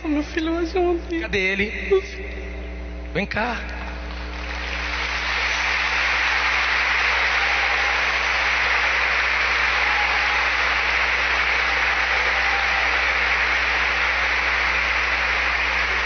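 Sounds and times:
congregation applauding: 3.9 - 16.0.

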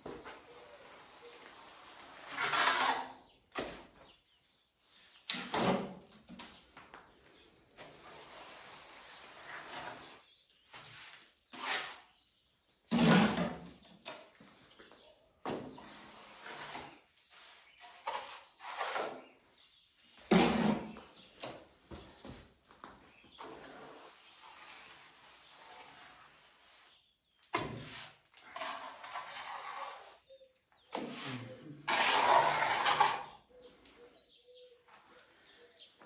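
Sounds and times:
trowel scraping mortar: 0.0 - 4.1, 5.2 - 6.6, 7.8 - 14.4, 15.4 - 19.4, 20.2 - 21.7, 23.4 - 33.5.

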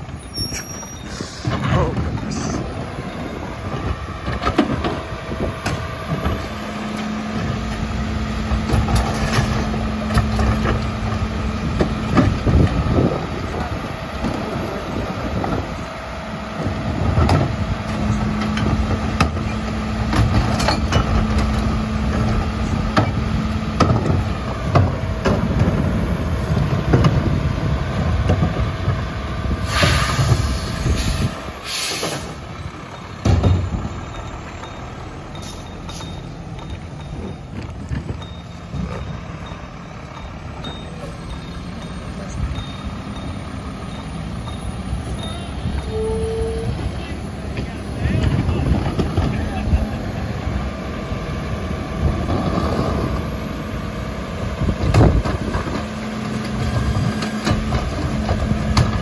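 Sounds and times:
air hiss: 29.6 - 32.3.

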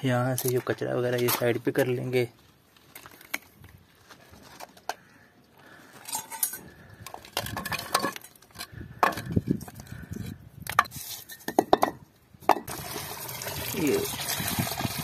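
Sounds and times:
metal tools clinking on brick: 6.0 - 9.9.

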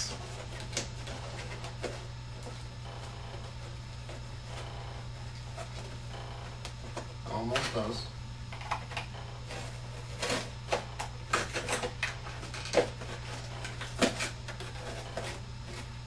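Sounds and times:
cardboard rubbing and knocking: 0.0 - 7.2, 9.3 - 16.0
box cutter cutting cardboard: 9.5 - 16.0.

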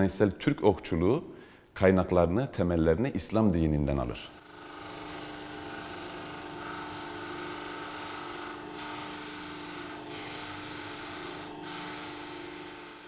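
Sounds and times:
sander motor hum: 4.1 - 13.0
sanding sleeve grinding wood: 4.5 - 13.0.

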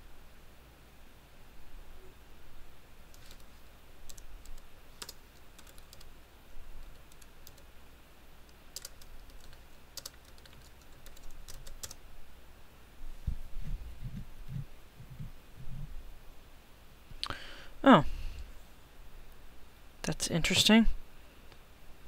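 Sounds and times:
keyboard typing clicks: 4.1 - 6.1, 6.8 - 7.6, 8.5 - 12.0.

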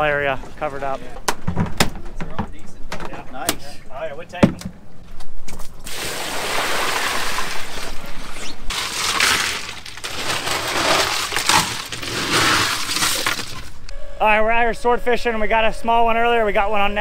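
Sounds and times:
ice and water splashing: 5.8 - 13.8
ice rattling: 8.7 - 13.8.

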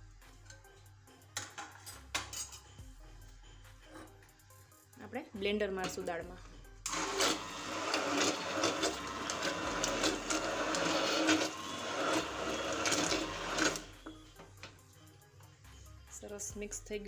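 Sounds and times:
immersion blender running: 6.9 - 14.1.

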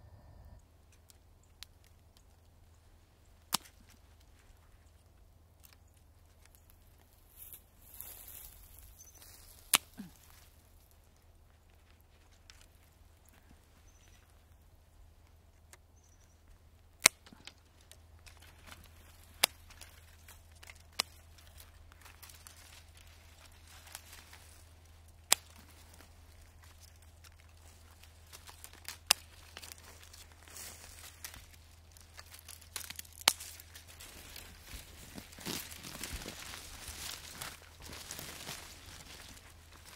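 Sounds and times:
branches rustling and crackling: 0.8 - 39.9
pruning shears snipping twigs: 17.0 - 38.6.

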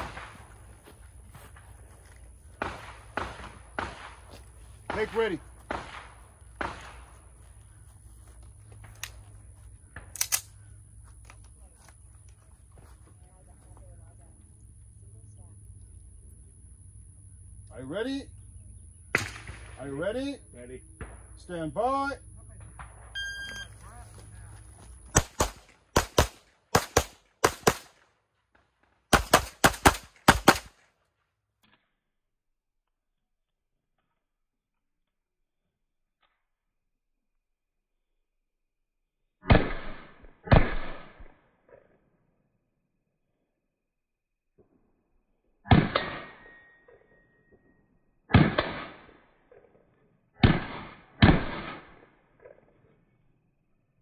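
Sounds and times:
pistol shots: 0.0 - 0.6, 2.6 - 4.3, 4.9 - 7.1, 25.1 - 28.0, 29.1 - 30.8, 39.4 - 41.3, 45.6 - 46.4, 48.3 - 49.2, 50.4 - 52.1
faint high ringing: 23.1 - 23.8, 46.4 - 48.0
gunshots with short echo: 48.3 - 49.2, 50.4 - 52.6.

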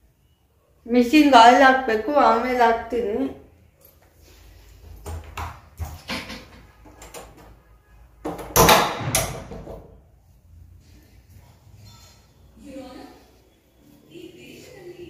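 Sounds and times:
door knocks and bumps: 8.3 - 10.0.

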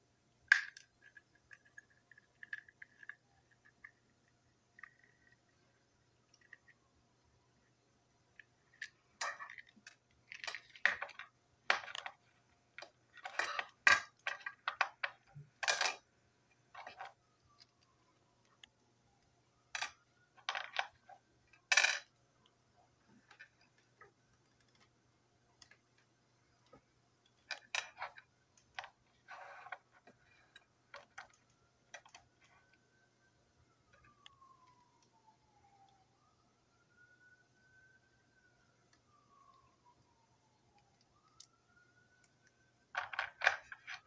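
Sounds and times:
pieces set down on tabletop: 21.7 - 22.0.

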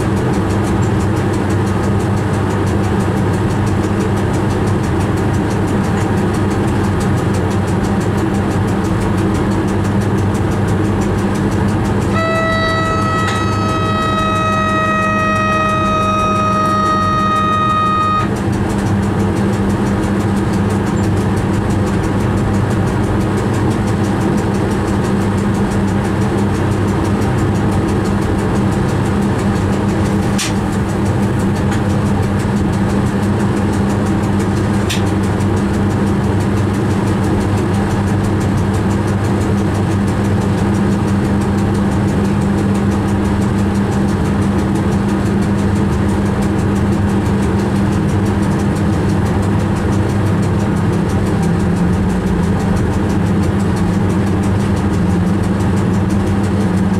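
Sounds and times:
electric train hum: 0.0 - 56.9
wheels rumbling on rail: 0.0 - 56.9
high steady tone: 12.1 - 18.4.

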